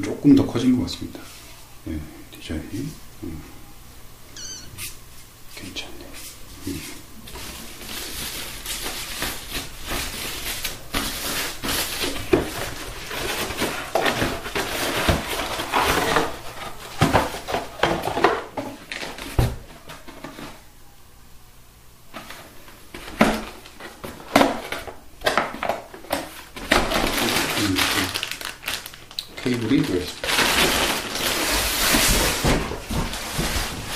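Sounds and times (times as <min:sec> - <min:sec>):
plastic bags crinkling: 0:07.3 - 0:17.7, 0:26.1 - 0:33.9.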